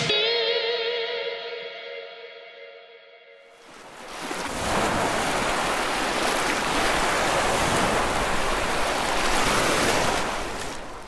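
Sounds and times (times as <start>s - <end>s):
surging water: 3.6s - 11.0s
wind: 3.6s - 11.0s.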